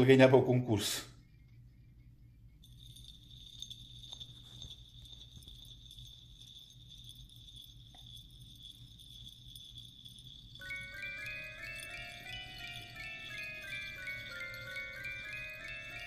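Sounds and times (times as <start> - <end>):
high-pitched ringing tone: 1.2 - 16.0.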